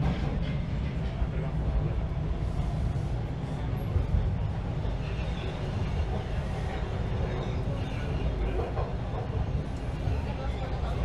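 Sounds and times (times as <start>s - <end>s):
subway train rumbling on rails: 0.0s - 11.0s.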